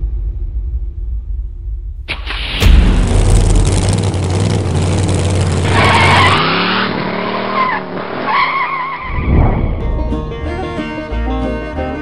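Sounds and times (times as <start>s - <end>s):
car engine rumble: 0.0s - 12.0s
tyres squealing: 5.6s - 9.2s.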